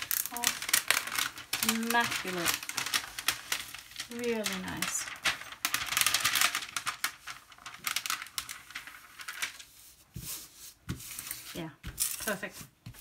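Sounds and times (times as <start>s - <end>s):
plastic film crackling as peeled: 0.0s - 9.7s.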